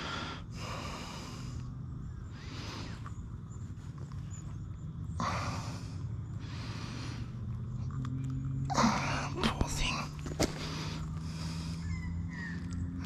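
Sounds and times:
heavy breaths snorted through nose: 0.0s - 4.0s, 5.0s - 7.8s, 10.2s - 13.0s
low steady hum: 0.0s - 13.0s.

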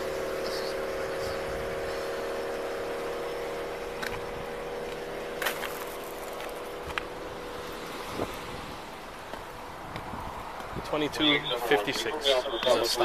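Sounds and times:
motor vehicles humming: 0.0s - 13.0s
road noise: 0.0s - 13.0s.

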